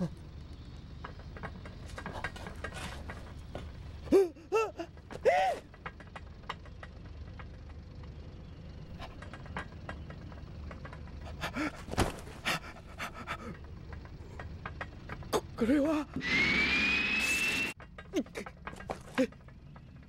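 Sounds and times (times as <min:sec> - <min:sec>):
low steady hum: 0:00.0 - 0:16.2
short whirring whines: 0:16.1 - 0:17.8.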